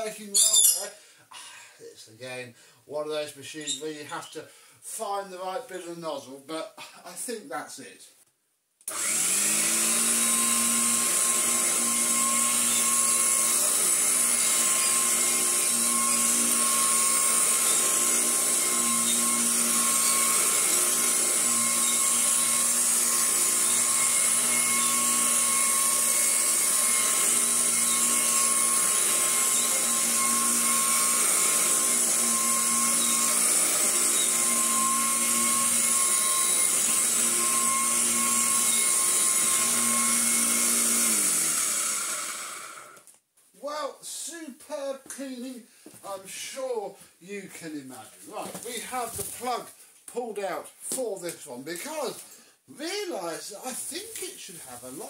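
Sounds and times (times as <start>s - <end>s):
vacuum cleaner running: 8.9s - 43.0s
vacuum motor winding down: 8.9s - 43.1s.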